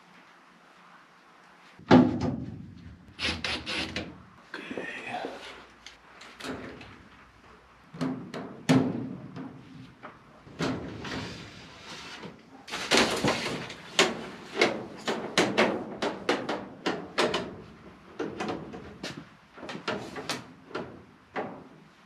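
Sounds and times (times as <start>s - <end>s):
metal ductwork and tools clattering: 6.2s - 22.0s.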